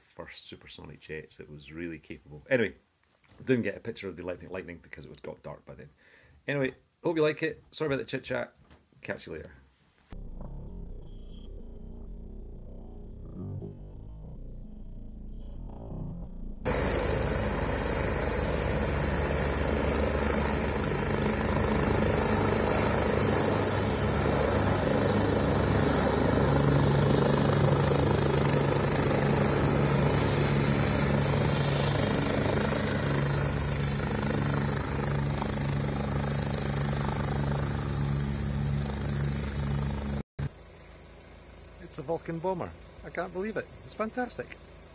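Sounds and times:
helicopter engine and rotor: 16.6s - 40.5s
thin high whine: 16.7s - 40.6s.

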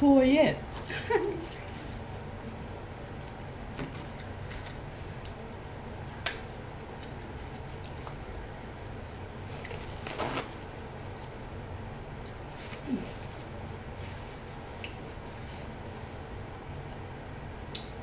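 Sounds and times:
steady low hum: 0.0s - 18.0s
short rustle: 9.4s - 10.6s.

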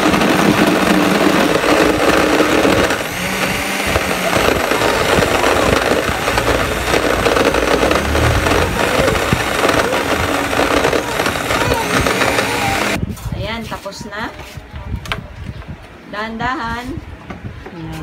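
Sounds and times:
blender motor running: 0.0s - 13.0s.

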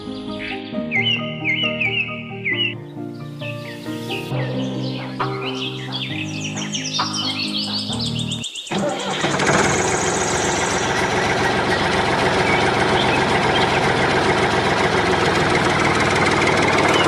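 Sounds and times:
diesel tractor engine knocking: 5.8s - 17.0s.

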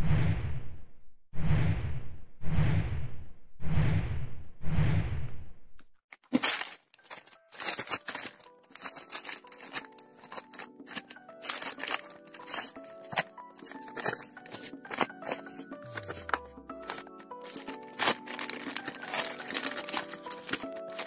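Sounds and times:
plastic mailer bag crinkling: 6.1s - 21.0s
background music: 6.4s - 21.0s.

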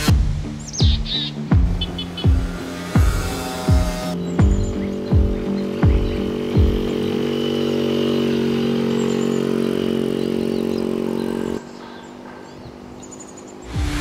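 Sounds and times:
moped engine running: 0.0s - 14.0s.

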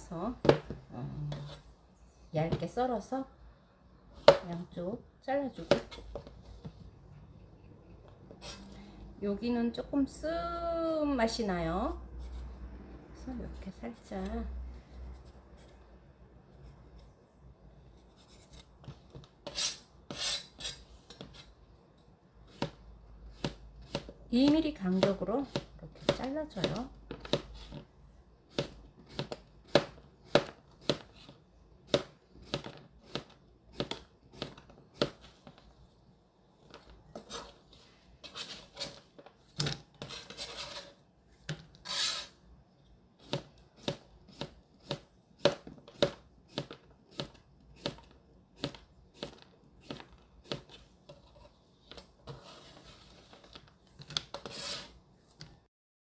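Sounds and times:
knife scraping board: 19.4s - 21.5s, 38.2s - 39.0s, 40.0s - 41.0s, 41.8s - 42.4s, 54.4s - 55.0s.

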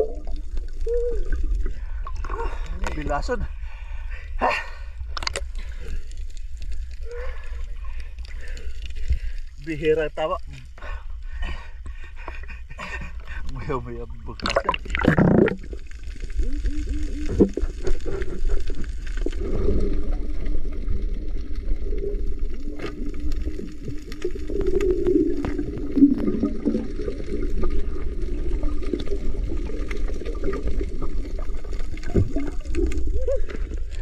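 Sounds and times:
water gurgling: 0.0s - 3.5s, 13.6s - 34.0s
muffled underwater drone: 14.0s - 34.0s.

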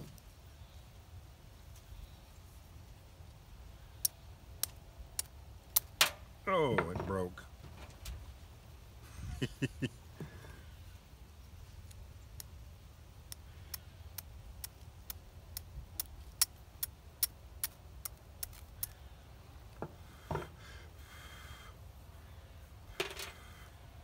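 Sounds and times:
steel striker scraping flint: 13.3s - 19.0s.

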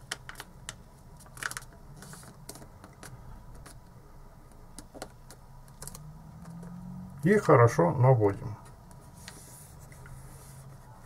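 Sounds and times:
paper rustling: 1.2s - 3.8s.

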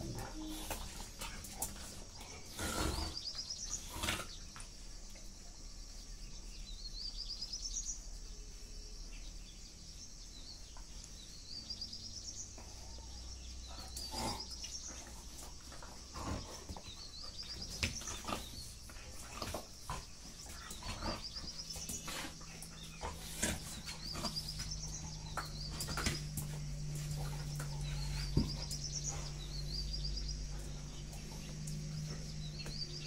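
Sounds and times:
dogs play-fighting: 0.0s - 4.8s, 12.5s - 33.0s
bird chirping: 0.0s - 33.0s
dogs scuffling and snapping: 13.8s - 33.0s.

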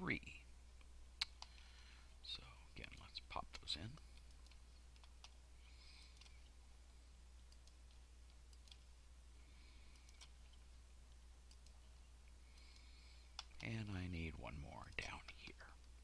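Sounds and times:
low steady hum: 0.0s - 16.0s
computer mouse clicks: 1.2s - 1.7s, 2.9s - 5.4s, 6.0s - 6.5s, 7.4s - 8.9s, 9.8s - 11.8s, 12.5s - 13.8s.

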